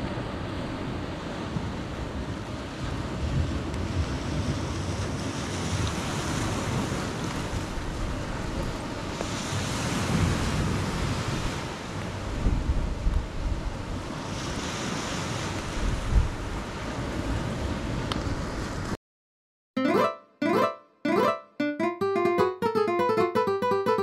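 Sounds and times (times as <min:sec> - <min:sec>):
wind buffeting microphone: 0:00.7 - 0:18.8.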